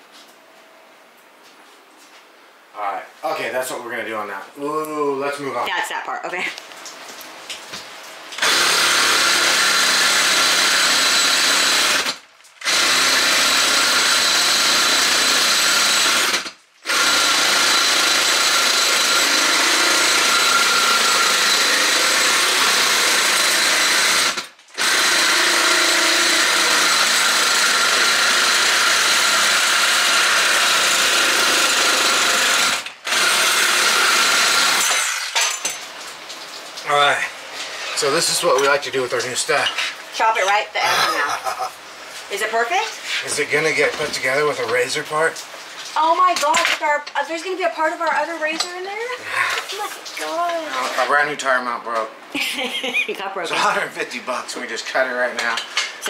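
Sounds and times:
reciprocating saw cutting metal: 0:08.4 - 0:35.2.

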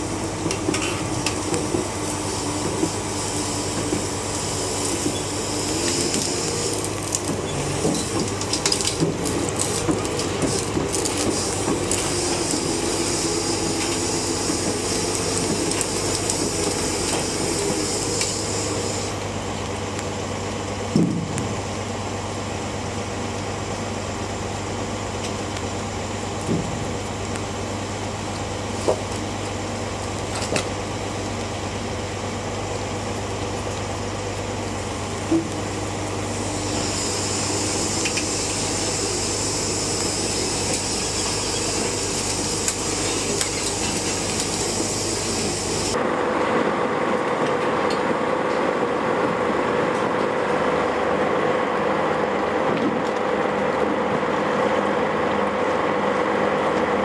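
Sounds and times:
steel tracks clanking: 0:00.0 - 0:19.2, 0:36.2 - 0:51.2
diesel engine running: 0:00.0 - 0:57.0.

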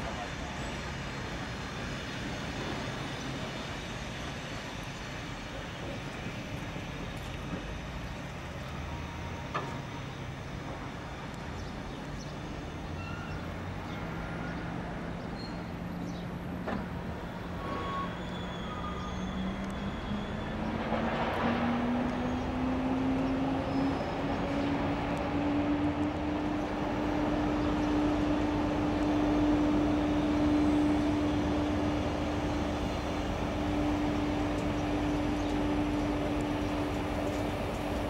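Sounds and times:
train wheels rumbling on rails: 0:00.0 - 0:38.0
faint short squeaks: 0:13.0 - 0:13.5, 0:17.5 - 0:20.4.

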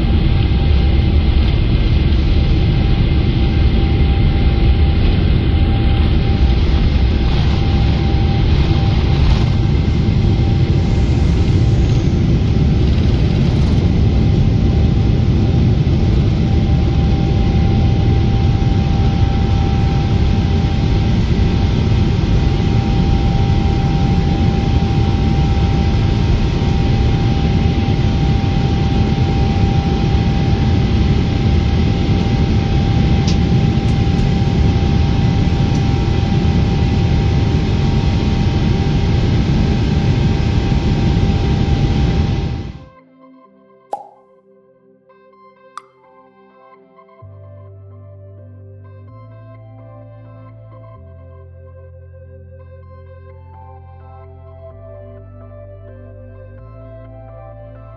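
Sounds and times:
airplane cabin rumble: 0:00.0 - 0:42.8
jet engine whine: 0:00.0 - 0:43.0.

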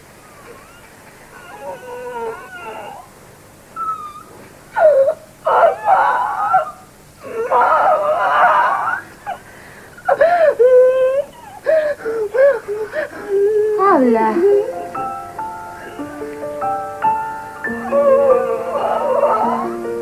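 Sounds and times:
woman moaning and wailing: 0:10.1 - 0:14.8, 0:17.8 - 0:19.8.

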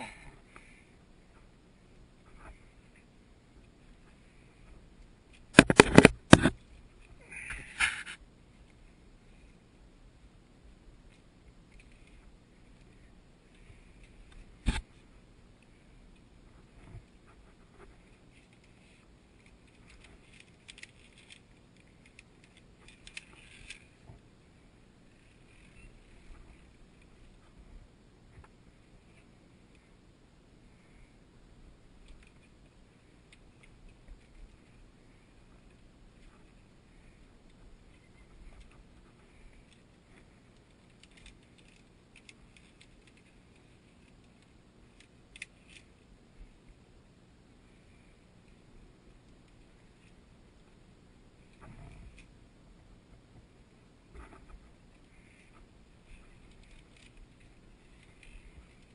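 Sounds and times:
carabiners clicking on steel cable: 0:18.3 - 0:24.0, 0:55.0 - 0:58.9.

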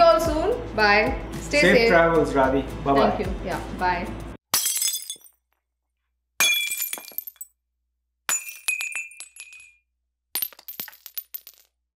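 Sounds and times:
glass shattering: 0:04.5 - 0:05.6, 0:06.4 - 0:07.5, 0:08.3 - 0:09.8, 0:10.4 - 0:11.7
glass shards tinkling: 0:08.3 - 0:09.8.

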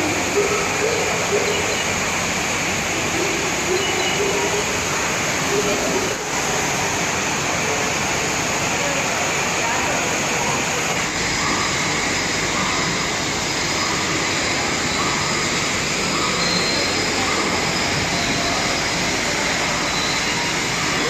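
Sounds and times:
indoor waterfall rushing: 0:00.0 - 0:21.0.

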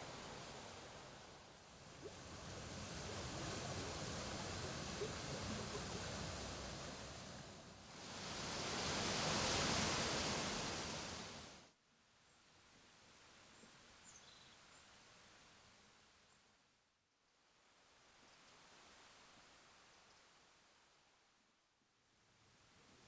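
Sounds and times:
rushing river water: 0:00.0 - 0:11.6.

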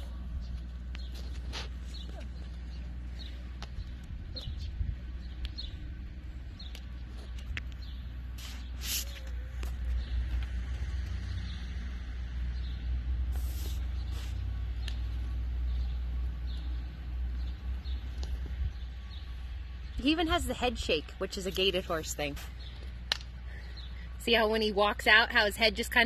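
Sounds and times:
wind rumbling on microphone: 0:03.2 - 0:08.0
brief hissing bursts: 0:08.4 - 0:09.2, 0:13.3 - 0:14.5.

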